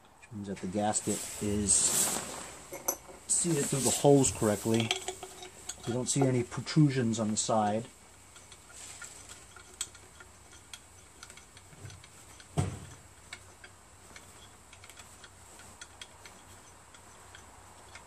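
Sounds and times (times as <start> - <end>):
metallic ticks of bolt threading: 4.6 - 18.0.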